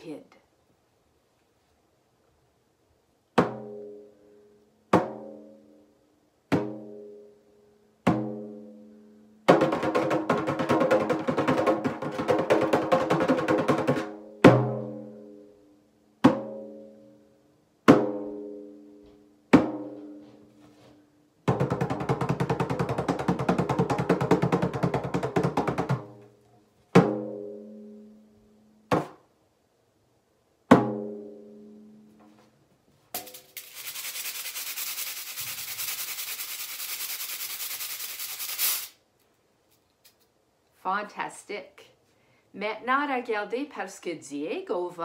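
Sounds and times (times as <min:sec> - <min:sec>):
hand drum beats and rolls: 0:09.5 - 0:15.0, 0:21.4 - 0:26.2.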